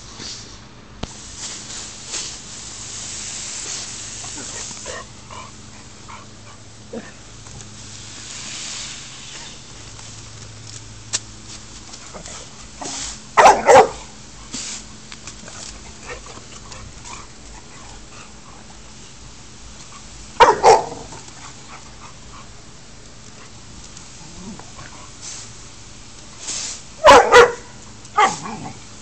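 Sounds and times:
dogs barking: 13.4s - 14.1s, 20.4s - 22.2s, 27.0s - 28.7s.

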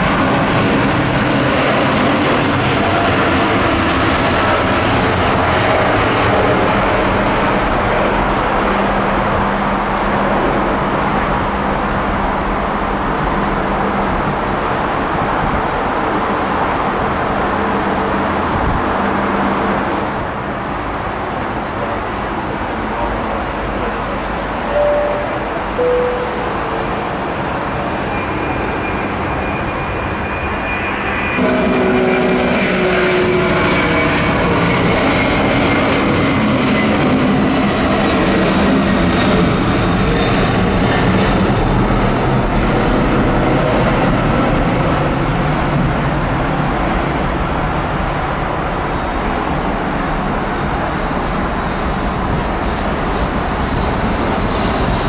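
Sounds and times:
jet engines roaring: 0.0s - 55.0s
high engine whine falling in pitch: 24.7s - 30.6s.

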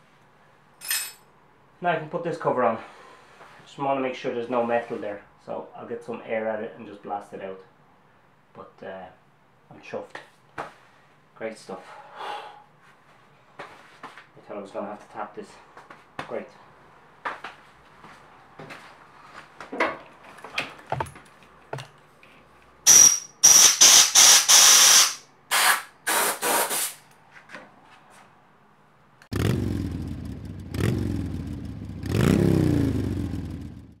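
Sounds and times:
air blow gun hissing blasts: 22.9s - 27.0s
engine revving: 29.3s - 34.0s.

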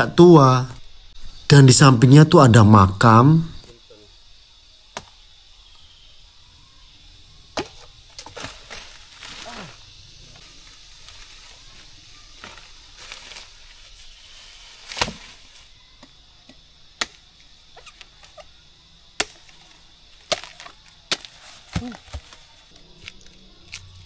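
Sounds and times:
blade chopping bamboo: 14.9s - 15.4s, 17.0s - 17.2s, 19.2s - 22.4s.

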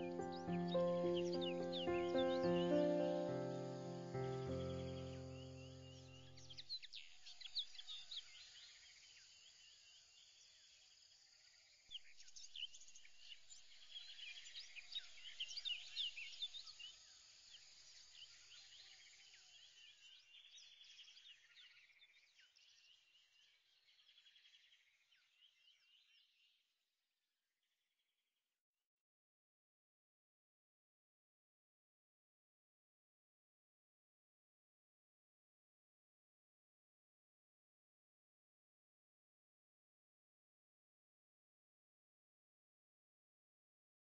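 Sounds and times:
birds chirping and trilling: 0.0s - 8.8s.

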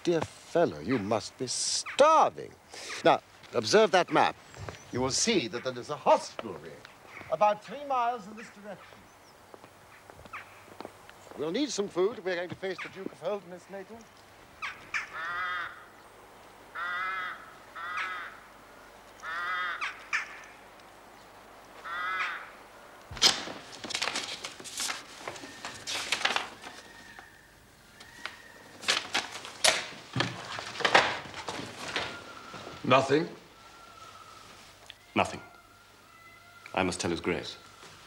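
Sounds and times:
crow cawing: 9.9s - 10.7s, 14.6s - 16.0s, 16.7s - 18.5s, 19.2s - 20.6s, 21.8s - 22.9s, 33.6s - 37.9s.

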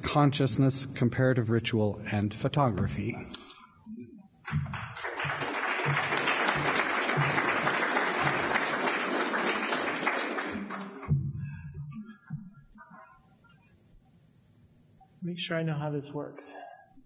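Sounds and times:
audience applauding: 4.7s - 11.1s.

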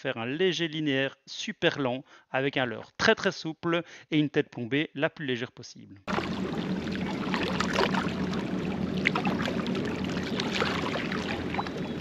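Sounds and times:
waves lapping against rocks: 6.1s - 12.0s
wind on microphone: 6.1s - 12.0s.

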